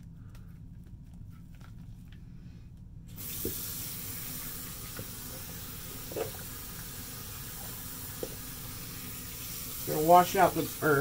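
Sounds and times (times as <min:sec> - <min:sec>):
tap running into sink: 0:03.2 - 0:03.8, 0:04.4 - 0:06.9, 0:07.6 - 0:08.5.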